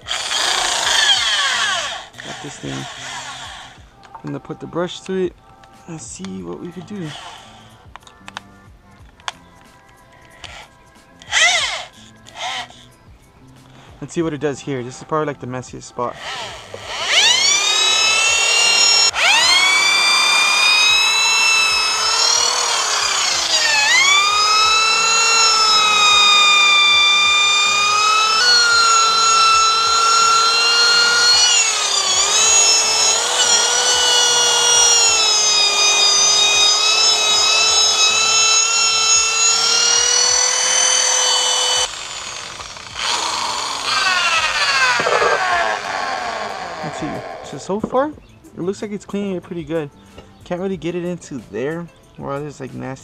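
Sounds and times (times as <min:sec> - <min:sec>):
electric drill whining: 0:00.0 - 0:04.0, 0:06.8 - 0:07.9, 0:10.4 - 0:12.9, 0:16.1 - 0:47.8.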